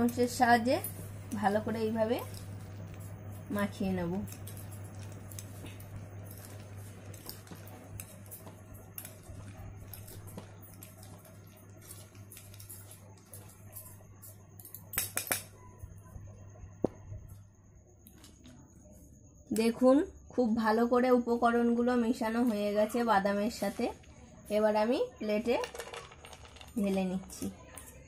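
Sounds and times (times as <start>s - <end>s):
forks clicking and scraping bowl: 0.0s - 15.6s.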